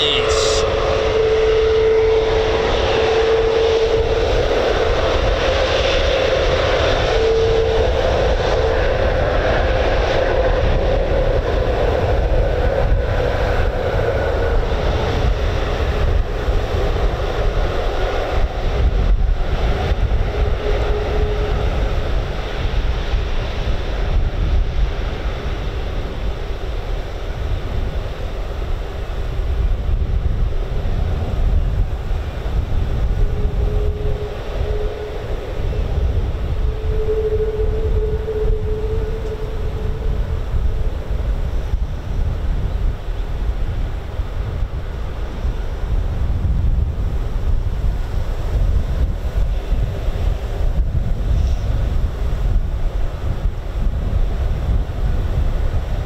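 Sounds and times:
jet engines whining: 0:00.0 - 0:09.8
wind rumble on microphone: 0:00.0 - 0:56.0.

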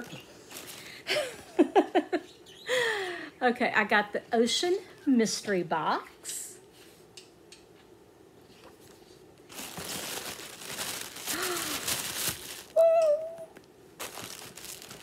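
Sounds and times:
packing material crinkling: 0:00.0 - 0:01.0, 0:09.4 - 0:13.4, 0:14.0 - 0:15.0.

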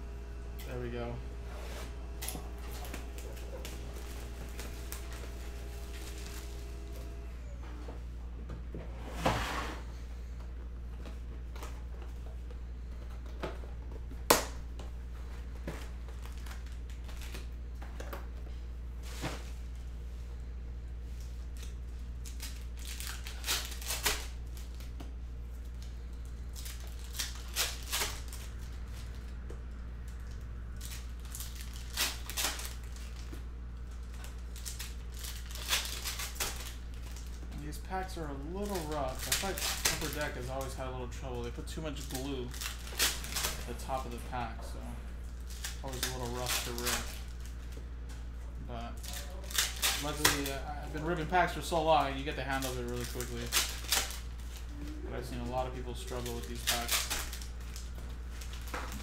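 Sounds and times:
steady low hum: 0:00.0 - 0:59.0
wrappers being torn open: 0:02.0 - 0:07.3, 0:16.0 - 0:17.6, 0:21.2 - 0:25.0, 0:25.6 - 0:44.2, 0:45.3 - 0:47.8, 0:48.9 - 0:54.8, 0:55.4 - 0:59.0.

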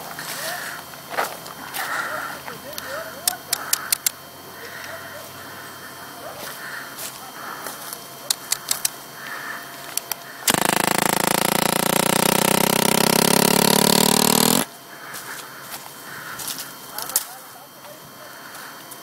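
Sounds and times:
rough buzzing tone: 0:10.5 - 0:14.7.

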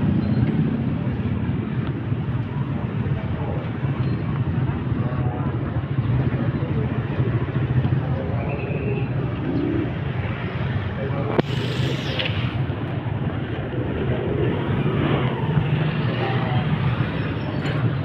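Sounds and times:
traffic rumble: 0:00.0 - 0:18.0
hissing rush: 0:09.4 - 0:17.1.

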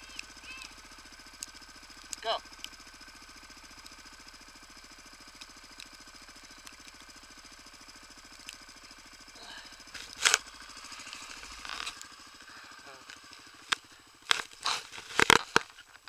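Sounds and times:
quad bike engine idling: 0:00.0 - 0:16.0.

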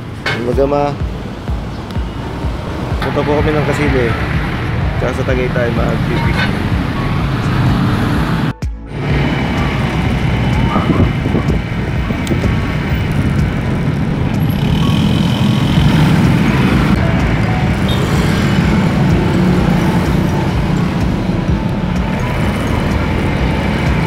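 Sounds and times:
scooter engine and road noise: 0:00.0 - 0:24.0
wind on microphone: 0:06.0 - 0:17.1.

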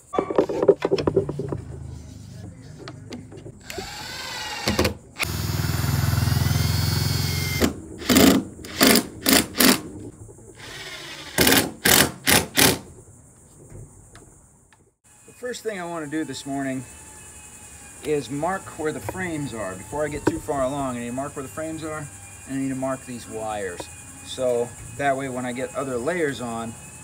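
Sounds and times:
crickets chirping: 0:00.0 - 0:27.0
cordless drill into wood: 0:03.6 - 0:09.8.

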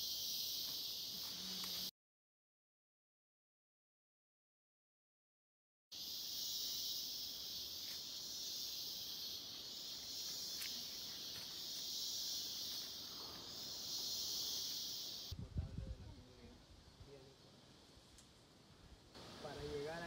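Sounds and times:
insects buzzing chorus: 0:00.0 - 0:01.9, 0:05.9 - 0:15.4, 0:19.2 - 0:20.0.

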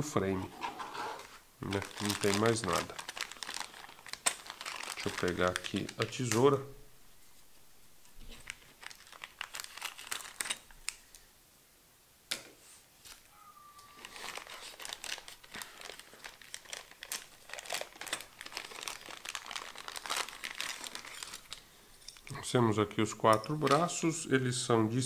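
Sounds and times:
plastic bags crinkling and tearing: 0:01.2 - 0:06.6, 0:08.1 - 0:11.0, 0:13.9 - 0:22.4.

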